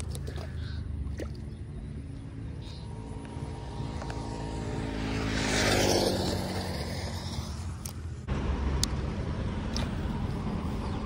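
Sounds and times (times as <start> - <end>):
vehicle driving past: 2.2 - 8.8.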